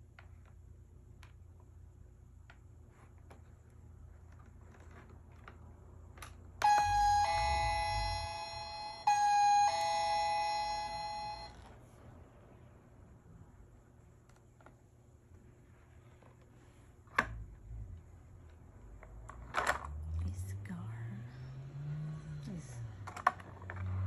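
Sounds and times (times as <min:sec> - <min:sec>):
electronic doorbell ding-dong chime: 0:06.6 - 0:11.6.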